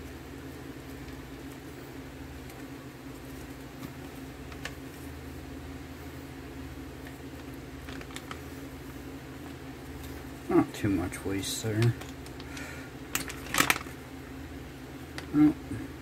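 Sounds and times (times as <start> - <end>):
low room hum: 0.0 - 16.0
packaging clicks: 11.7 - 14.0.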